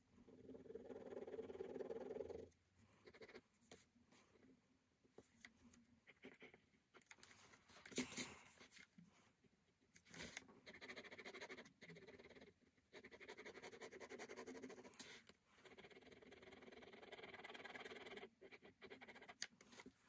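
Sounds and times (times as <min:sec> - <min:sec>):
pen scratching on paper: 0:00.9 - 0:03.8, 0:10.1 - 0:19.9
sketchbook rustling: 0:19.5 - 0:20.0.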